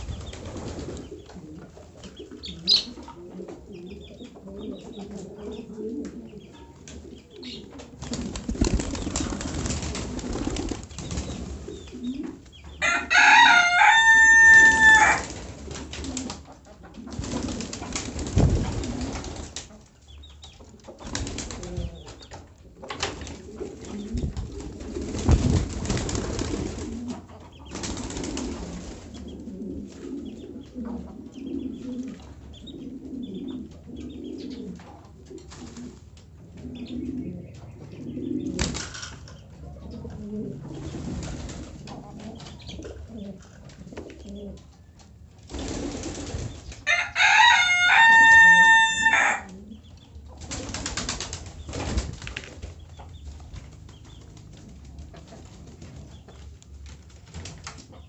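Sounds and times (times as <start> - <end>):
wings flapping: 0.0 - 1.3, 7.8 - 11.8, 14.4 - 16.4, 17.0 - 19.8, 20.9 - 29.2, 38.5 - 39.2, 40.7 - 42.8, 45.5 - 49.4, 50.4 - 58.0
pigeons cooing: 0.0 - 20.0, 20.7 - 44.9, 45.5 - 53.2.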